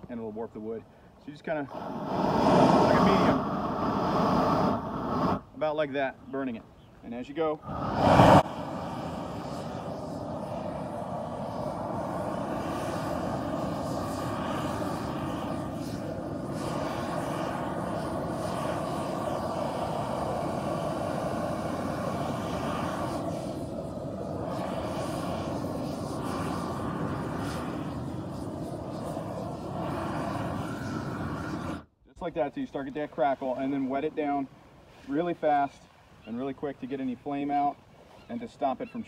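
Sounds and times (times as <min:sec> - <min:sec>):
gas torch burner roaring: 0:01.6 - 0:05.4, 0:07.6 - 0:31.9.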